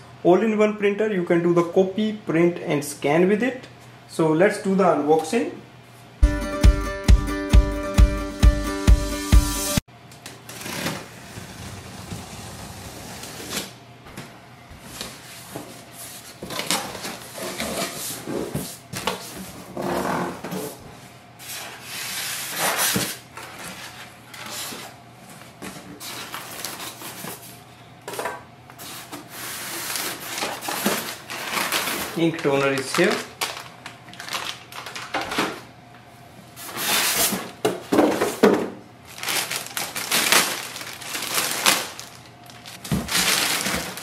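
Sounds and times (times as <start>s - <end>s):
styrofoam scraping: 10.5s - 13.7s, 28.8s - 33.6s, 36.6s - 37.5s, 39.1s - 44.0s
plastic wrap crinkling: 29.6s - 35.5s, 39.0s - 44.0s
cardboard box rustling: 39.1s - 44.0s.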